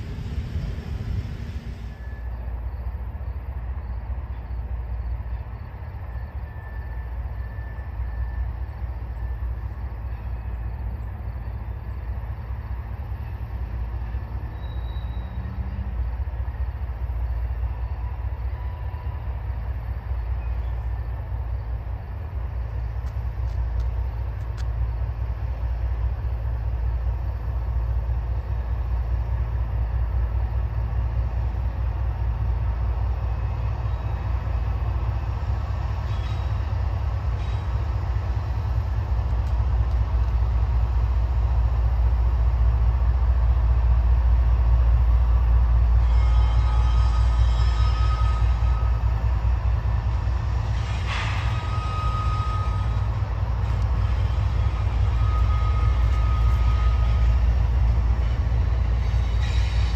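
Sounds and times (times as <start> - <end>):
freight cars rolling: 0.0 - 2.2
diesel locomotive engines rumbling: 0.0 - 59.9
wheel squeal: 14.5 - 15.6, 50.7 - 57.5, 58.2 - 59.9.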